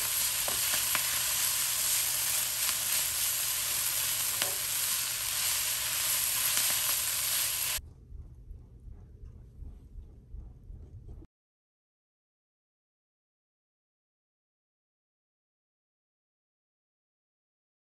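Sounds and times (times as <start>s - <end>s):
vegetables sizzling in frying pan: 0.0s - 7.8s.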